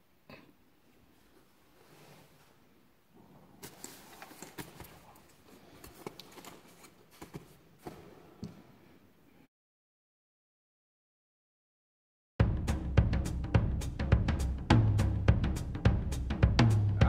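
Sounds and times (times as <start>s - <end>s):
backpack rustling: 3.6s - 8.4s.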